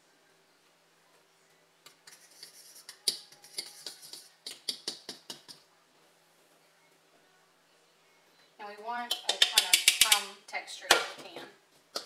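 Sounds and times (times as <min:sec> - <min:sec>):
fork scraping a mixing bowl: 0:02.0 - 0:05.6.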